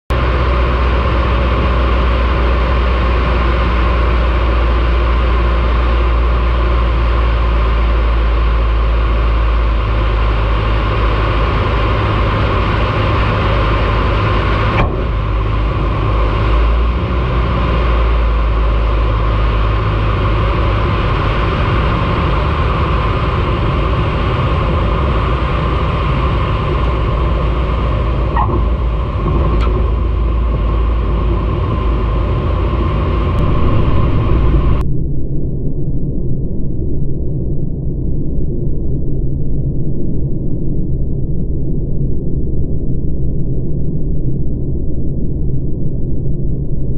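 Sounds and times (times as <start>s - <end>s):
aircraft engine and propeller drone: 0.1s - 35.3s
airflow noise: 0.2s - 34.9s.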